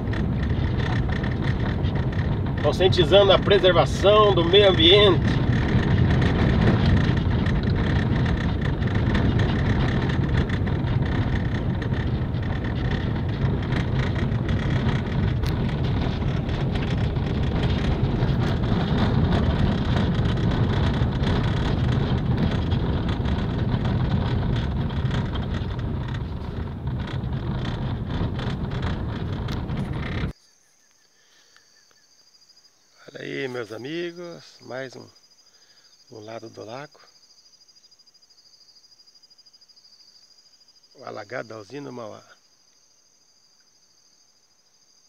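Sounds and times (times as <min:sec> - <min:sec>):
car engine and tyre noise: 0:00.0 - 0:30.4
small clicks and rattles: 0:00.0 - 0:30.4.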